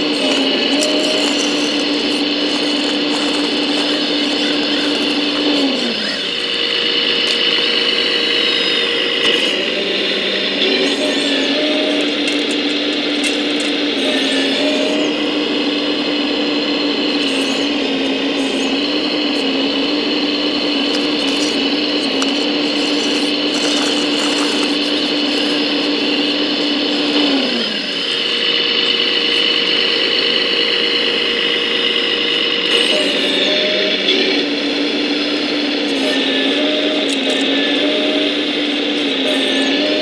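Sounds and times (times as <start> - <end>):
model excavator motor whine: 0.0 - 40.0
light clicks and soil scrapes: 0.1 - 5.6, 20.9 - 25.5.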